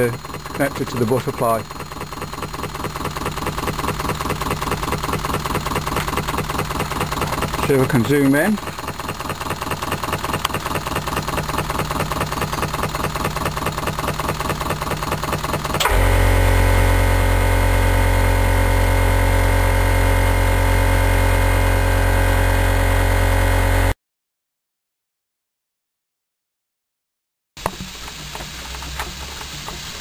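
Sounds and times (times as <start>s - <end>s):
model engine exhaust beating: 0.0s - 24.0s.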